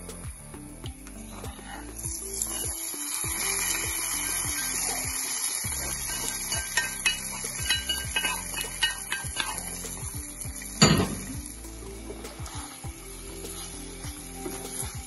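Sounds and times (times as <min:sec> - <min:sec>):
spoon scraping and clinking pans: 0:05.8 - 0:10.1
loud metal clank: 0:10.8 - 0:11.4.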